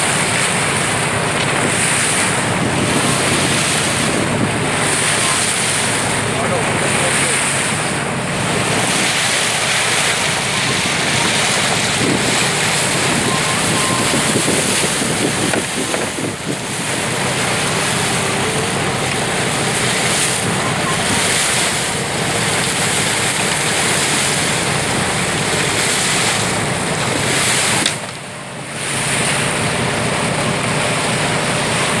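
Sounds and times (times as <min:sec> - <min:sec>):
sea water rushing past boat: 0:00.0 - 0:32.0
wind buffeting microphone: 0:01.0 - 0:06.2, 0:07.7 - 0:18.1.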